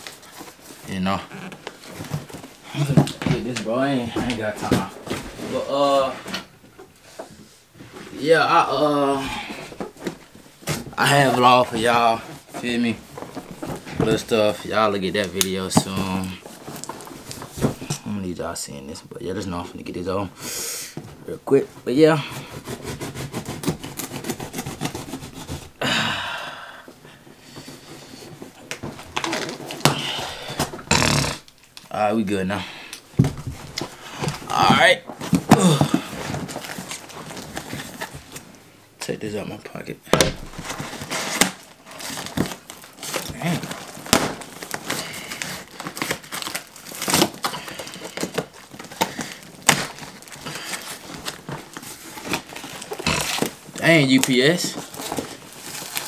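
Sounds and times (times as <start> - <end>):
cardboard scraping: 22.3 - 25.8, 40.4 - 56.0
cardboard tearing: 22.3 - 25.8, 40.4 - 56.0
packing tape ripping: 22.6 - 25.6, 29.2 - 31.8, 40.5 - 56.0.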